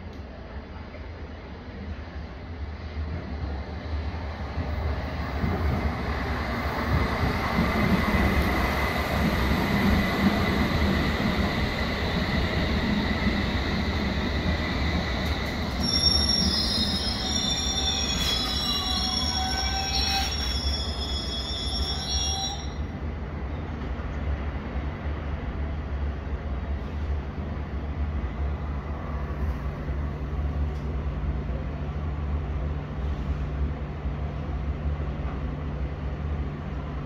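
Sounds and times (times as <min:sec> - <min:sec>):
high-pitched brake squeals: 0:15.7 - 0:22.9.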